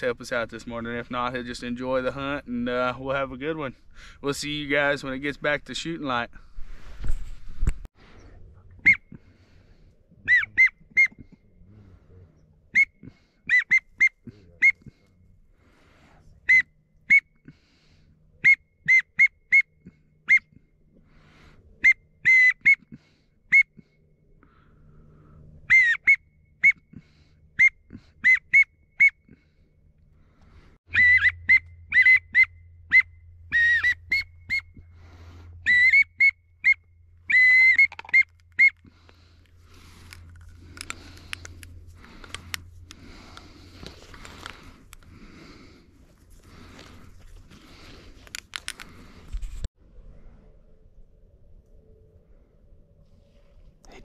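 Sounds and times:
low steady rumble: 0:00.0 - 0:13.4, 0:23.1 - 0:54.0
whistled peeps: 0:08.1 - 0:09.2, 0:10.2 - 0:11.3, 0:12.4 - 0:15.0, 0:16.4 - 0:17.4, 0:18.4 - 0:20.6, 0:21.8 - 0:23.8, 0:25.6 - 0:26.9, 0:27.5 - 0:29.3, 0:30.9 - 0:34.8, 0:35.6 - 0:39.0.

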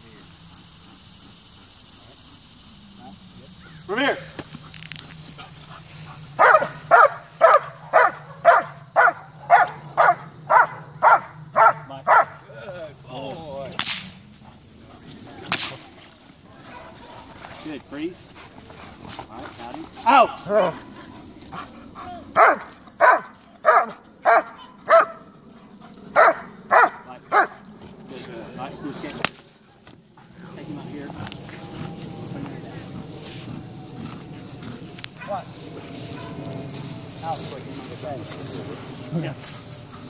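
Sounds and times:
dog barking: 0:06.4 - 0:12.4, 0:22.4 - 0:25.2, 0:26.1 - 0:27.6, 0:36.2 - 0:36.4.

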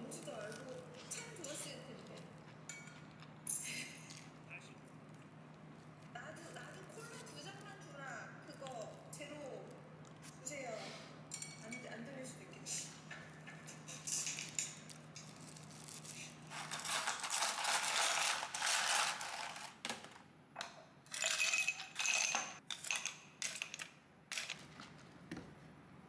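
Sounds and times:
rattling and clinking objects: 0:21.1 - 0:24.6.

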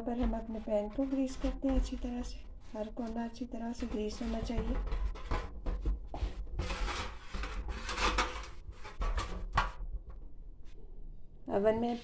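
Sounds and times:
rubbing on metal baking tray: 0:00.0 - 0:09.4.

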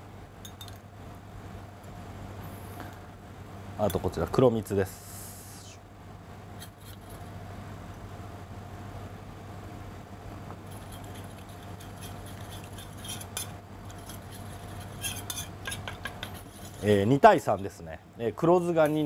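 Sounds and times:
spoon scraping metal bowl: 0:10.7 - 0:17.0.

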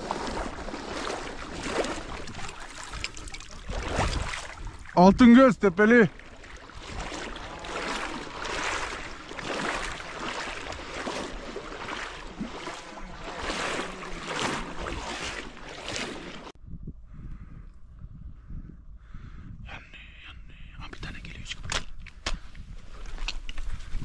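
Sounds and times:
wind on microphone: 0:00.0 - 0:05.3, 0:06.3 - 0:24.0
water swishing and splashing: 0:00.0 - 0:16.6
quiet outdoor background: 0:16.6 - 0:24.0.

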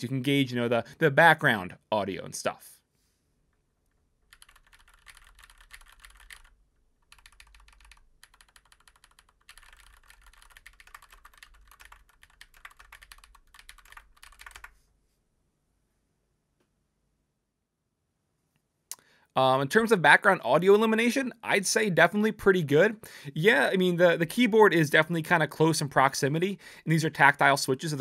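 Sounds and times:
mechanical keyboard typing: 0:04.3 - 0:14.7.

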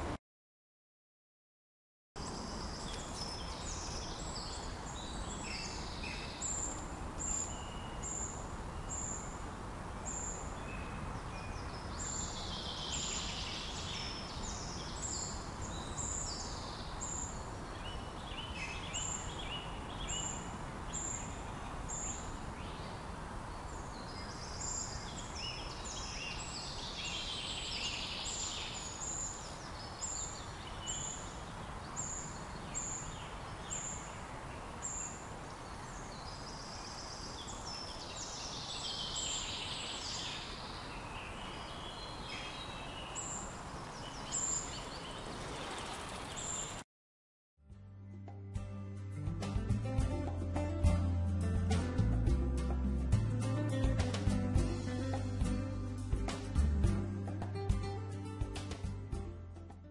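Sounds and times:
songbirds singing: 0:02.2 - 0:46.8.

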